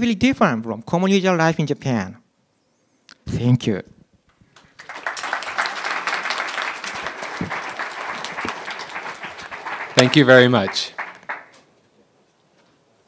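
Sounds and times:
audience applauding: 4.5s - 11.7s.

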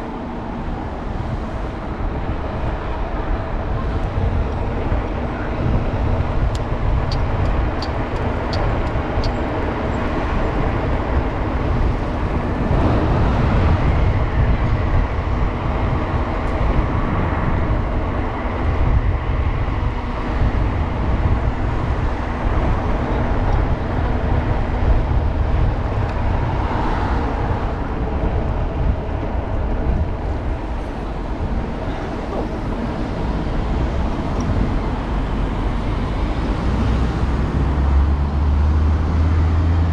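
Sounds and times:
traffic rumble: 0.0s - 39.9s.

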